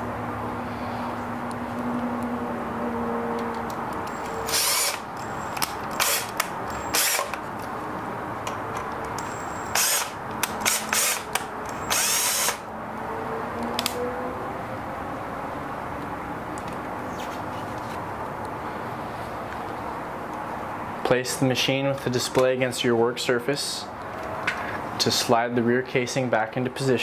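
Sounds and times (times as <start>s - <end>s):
electric screwdriver bursts: 4.1s - 7.4s, 9.2s - 12.6s.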